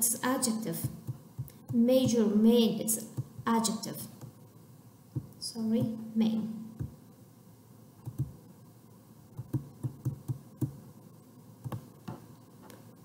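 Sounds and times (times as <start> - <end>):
stylus tapping on touchscreen: 0.8 - 2.3, 5.1 - 6.0, 6.8 - 7.0, 8.0 - 8.4, 9.4 - 10.8, 11.6 - 12.3.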